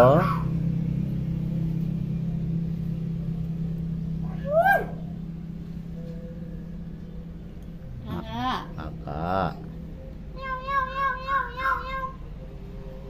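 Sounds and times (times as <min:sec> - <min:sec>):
low engine hum: 0:00.0 - 0:13.0
myna call rising and falling: 0:04.2 - 0:05.3, 0:08.0 - 0:12.6.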